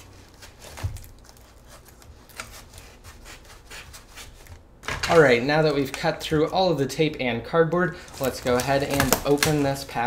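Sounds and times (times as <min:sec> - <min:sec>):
knife sawing through cardboard: 0:00.0 - 0:04.5.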